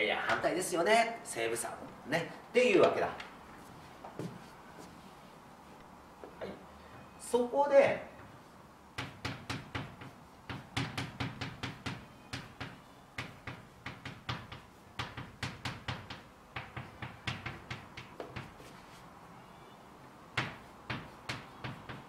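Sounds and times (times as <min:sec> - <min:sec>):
chalk tapping and scraping on blackboard: 0:09.0 - 0:19.1, 0:20.4 - 0:22.0.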